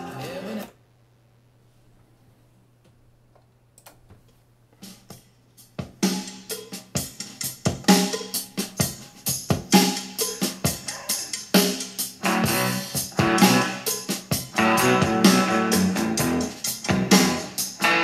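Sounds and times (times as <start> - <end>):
rock music with drums: 4.8 - 18.0.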